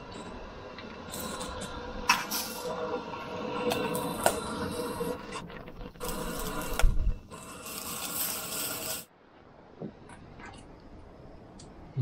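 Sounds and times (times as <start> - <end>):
gas burner hissing: 0.0 - 9.2
water boiling in pot: 0.0 - 9.2.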